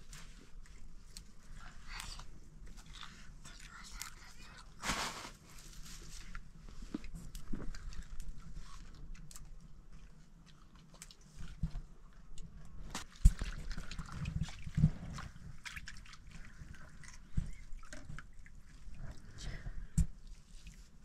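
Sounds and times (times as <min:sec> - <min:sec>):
water sloshing and dripping: 0:05.8 - 0:21.0.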